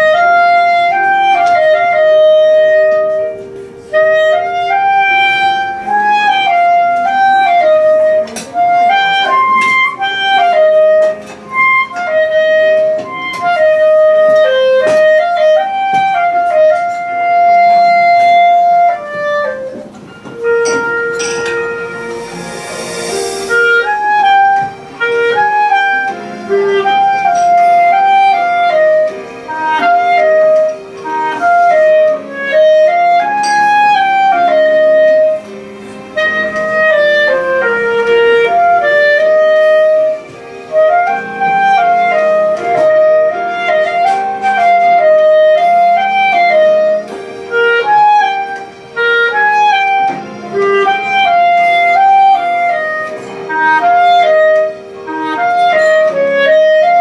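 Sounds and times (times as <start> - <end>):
clarinet melody: 0.0 - 57.0
low sustained accompaniment notes: 16.3 - 57.0.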